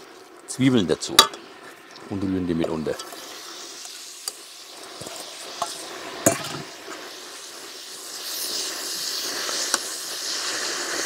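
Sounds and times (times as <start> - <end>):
onions sizzling in a pot: 0.0 - 11.0.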